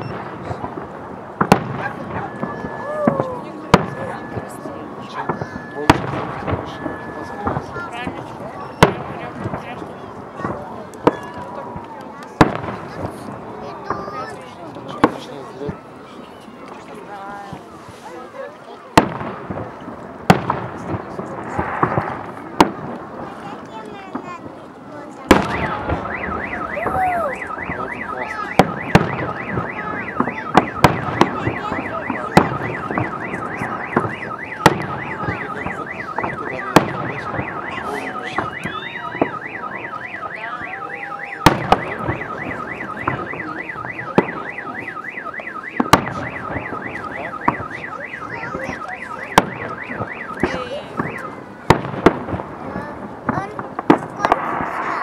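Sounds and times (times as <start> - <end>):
fireworks bangs: 0.0 - 55.0
car alarm warbling: 1.8 - 9.6, 25.4 - 51.6.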